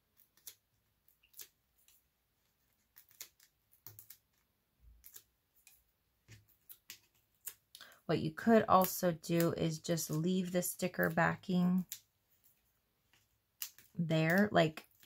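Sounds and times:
paper peeling clicks: 2.8 - 5.8, 13.5 - 15.0.

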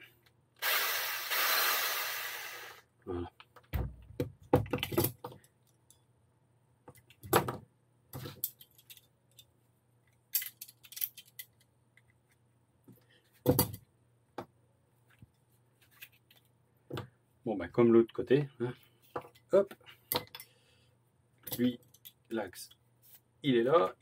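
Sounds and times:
metal and plastic parts clinking: 8.2 - 9.5, 10.1 - 11.7.

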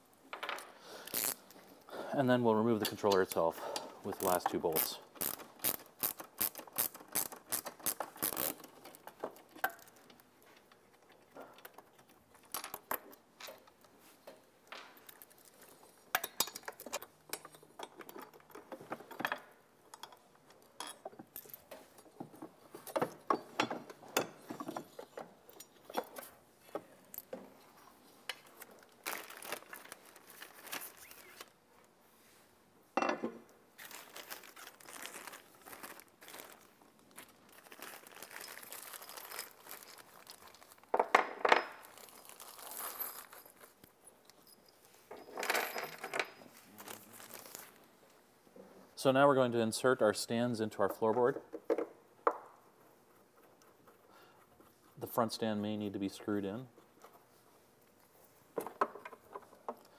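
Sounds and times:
metal bolts clinking: 16.1 - 21.9, 44.1 - 46.4
plastic bag crinkling: 28.8 - 31.5, 33.8 - 40.9, 41.8 - 43.8, 46.6 - 47.8.

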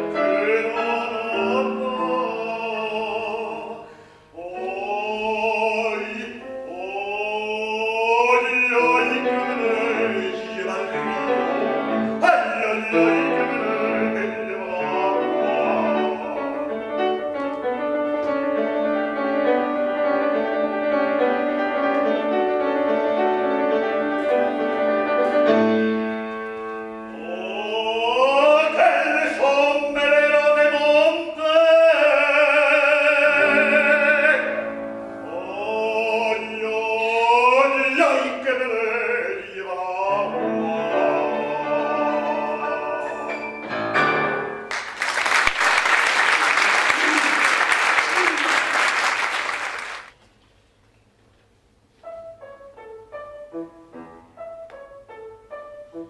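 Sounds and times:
man singing operatically: 0.0 - 17.0, 27.1 - 43.6
grand piano accompaniment: 0.0 - 50.2, 51.0 - 56.0.

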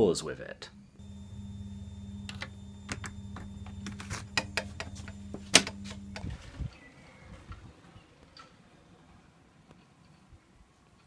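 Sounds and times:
steady low hum: 0.0 - 6.8.

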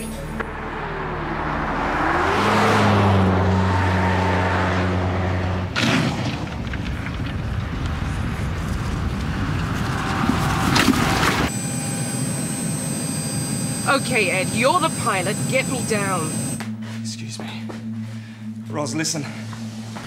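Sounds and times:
car driving past: 0.2 - 5.8.

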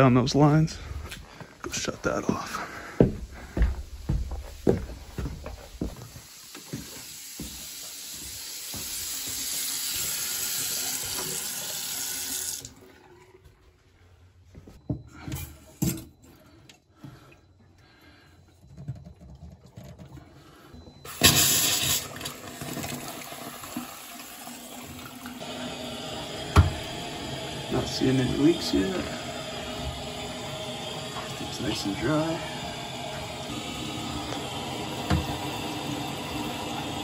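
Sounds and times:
sink faucet running: 3.6 - 13.2, 21.1 - 37.0
pipe knocks: 26.5 - 26.8.

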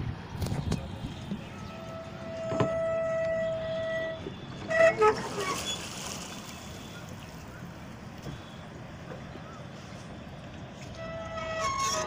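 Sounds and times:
horn long steady note: 1.5 - 4.3
short horn blasts: 1.5 - 5.4, 11.0 - 12.0.

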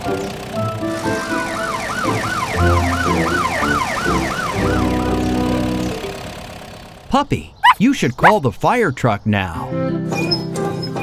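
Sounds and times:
background music: 0.0 - 6.1, 9.6 - 11.0
cartoon police siren: 1.3 - 5.8.

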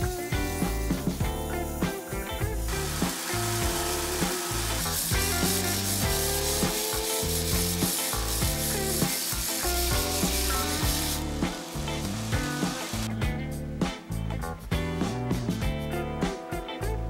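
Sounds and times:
background music: 0.0 - 17.0
belt grinder grinding steel: 2.7 - 13.1.

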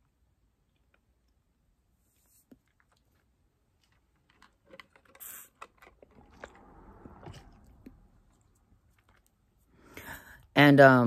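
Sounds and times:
soft rustle: 1.9 - 4.7.

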